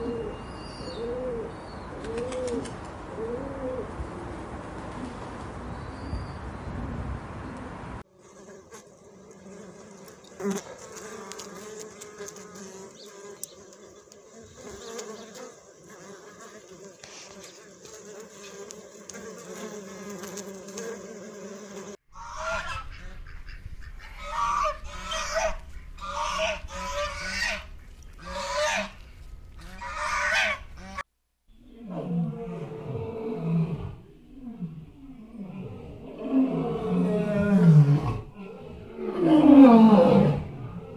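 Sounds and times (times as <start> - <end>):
bees buzzing: 8.1 - 22.0
geese honking: 22.2 - 29.0, 29.6 - 31.0.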